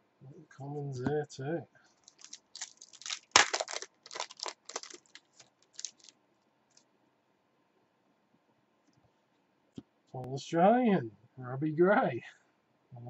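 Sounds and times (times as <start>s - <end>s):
wrapper tearing and crinkling: 2.0s - 6.1s.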